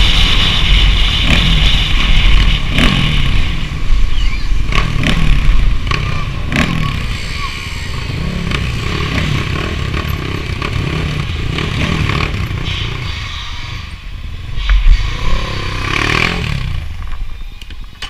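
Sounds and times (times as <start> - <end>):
dirt bike engine running: 0.0 - 3.9, 8.0 - 13.0, 14.7 - 17.1.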